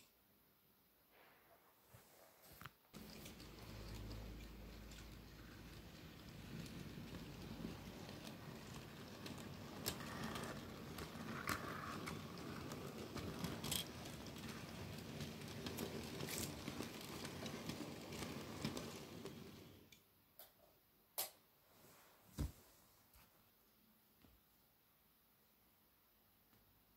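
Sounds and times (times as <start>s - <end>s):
model train wagons rumbling: 3.0s - 19.9s.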